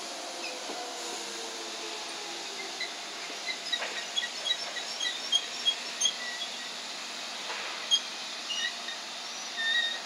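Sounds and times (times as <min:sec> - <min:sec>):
train rumbling hiss: 0:00.0 - 0:09.4.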